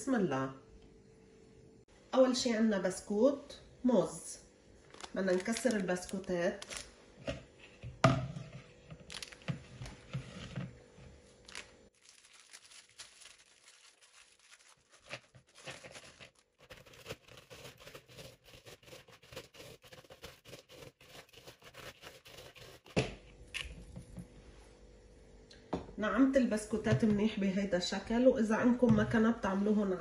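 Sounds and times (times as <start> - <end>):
cellophane wrapper crinkling: 4.8 - 6.9, 9.0 - 9.5, 11.4 - 18.1
biscuits being crushed by hand: 11.4 - 18.1.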